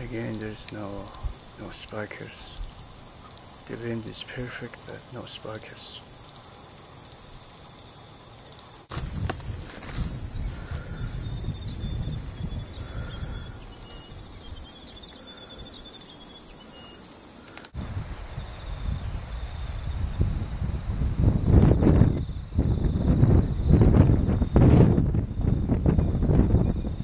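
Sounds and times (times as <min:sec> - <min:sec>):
high-pitched insect chorus: 0:00.0 - 0:27.0
people walking through long grass: 0:06.1 - 0:12.6.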